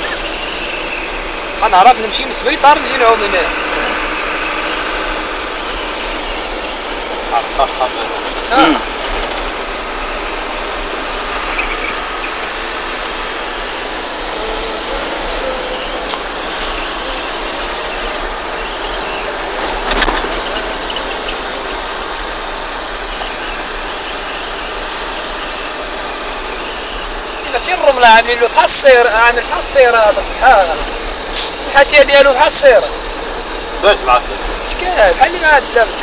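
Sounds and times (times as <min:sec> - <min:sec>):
moving vehicle running noise: 0:00.0 - 0:36.0.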